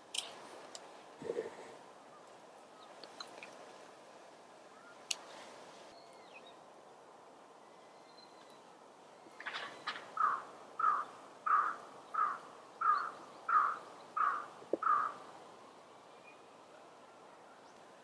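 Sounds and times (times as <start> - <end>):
crow cawing: 10.2 - 15.2.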